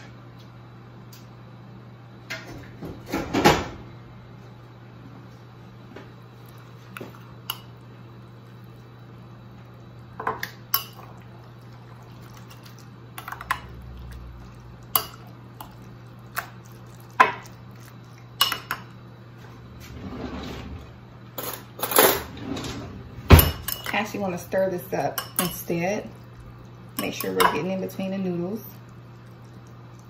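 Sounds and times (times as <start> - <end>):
soft wet stirring: 5.3 - 19.7, 23.7 - 30.0.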